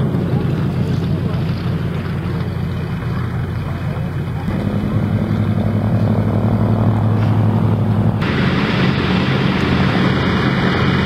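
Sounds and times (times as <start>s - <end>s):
propeller plane engines droning: 0.0s - 11.0s.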